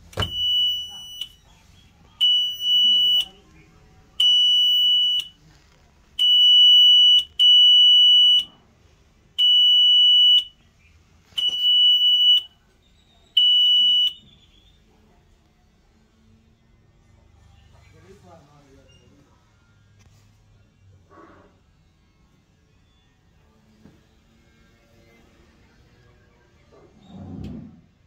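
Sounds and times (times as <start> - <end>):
alarm buzzer beeping: 0.2 - 1.4, 2.2 - 3.4.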